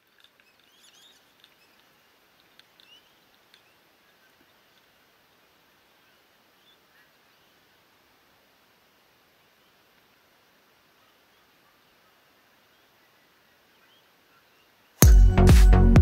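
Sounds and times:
bird chirps: 0:00.0 - 0:02.0, 0:02.7 - 0:04.9, 0:11.0 - 0:15.0
faint ticks: 0:00.0 - 0:05.0
faint outdoor hiss: 0:00.0 - 0:16.0.

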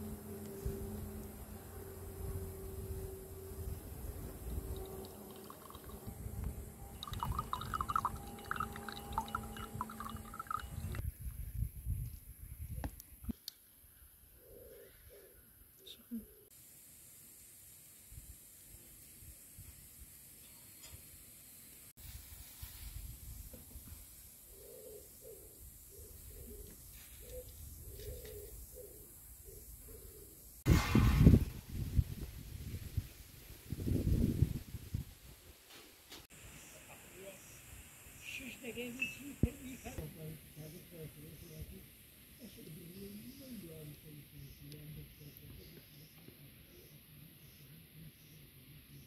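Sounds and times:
low rumble: 0:00.0 - 0:11.0
juice trickling into a mug: 0:04.5 - 0:06.1, 0:06.9 - 0:11.0
dove cooing softly: 0:14.4 - 0:16.5, 0:24.5 - 0:30.4.

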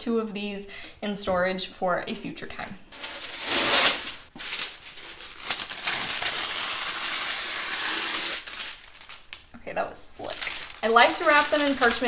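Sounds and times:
parchment paper rustling: 0:02.9 - 0:12.0.

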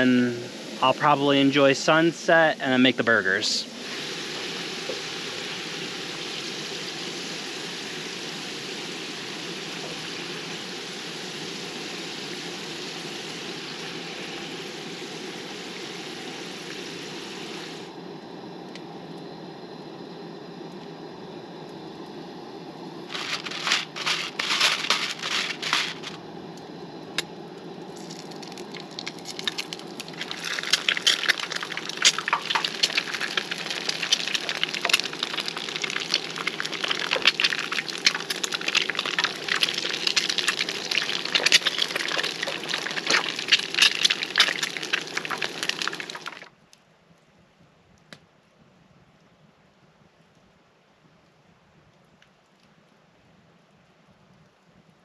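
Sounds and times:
eggs sizzling in oil: 0:03.2 - 0:17.9, 0:23.0 - 0:46.5
stove burner rushing: 0:20.7 - 0:46.5.

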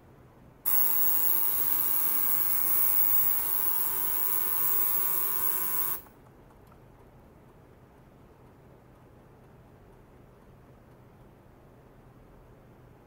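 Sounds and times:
ultrasonic cleaner buzzing hiss: 0:00.7 - 0:06.1.

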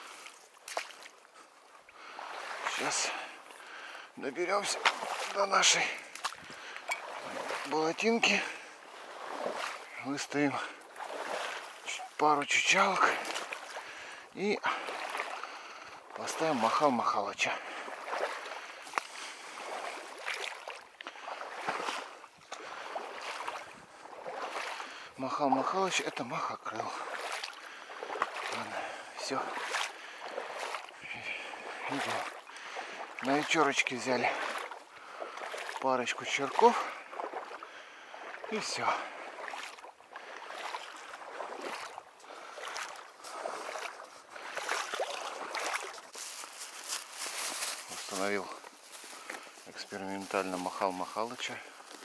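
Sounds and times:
sloshing through shallow water: 0:00.0 - 0:52.0
rustling: 0:46.1 - 0:50.6.

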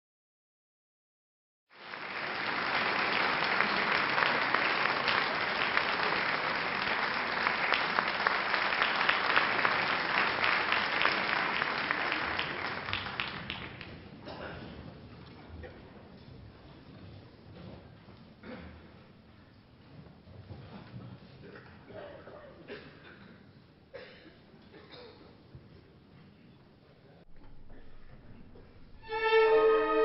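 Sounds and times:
audience applauding: 0:01.7 - 0:14.0.

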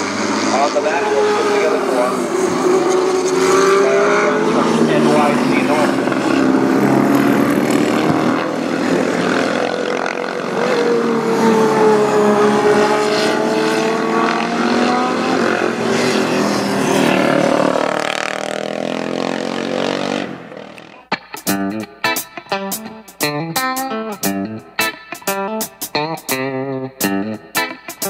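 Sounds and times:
racing motorcycles passing: 0:00.0 - 0:21.1.

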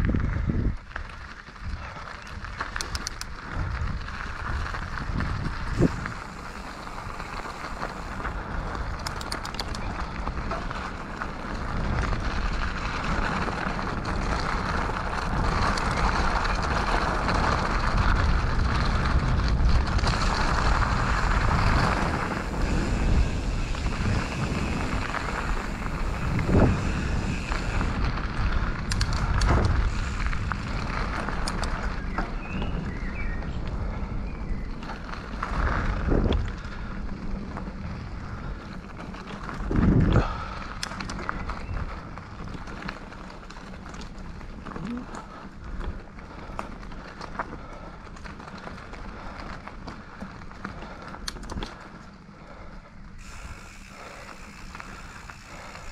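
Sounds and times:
wind on microphone: 0:00.0 - 0:42.9
bike tyre rumble: 0:00.0 - 0:55.9.

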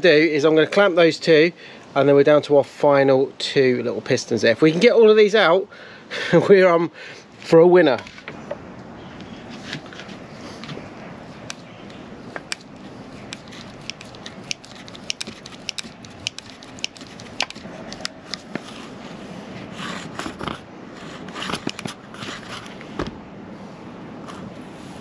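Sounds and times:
hands rustling and scraping: 0:09.2 - 0:23.0.

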